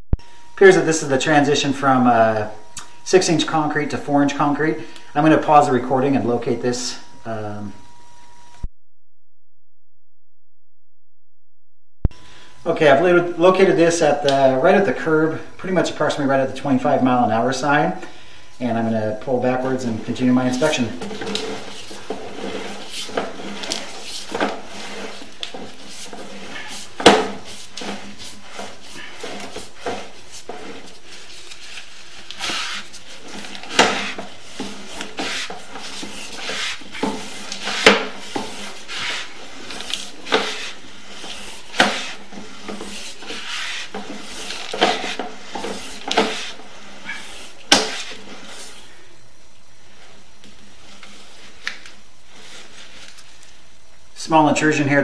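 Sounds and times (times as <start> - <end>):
steady low hiss: 12.1 - 55.0
cable knocking and scraping: 20.6 - 39.0.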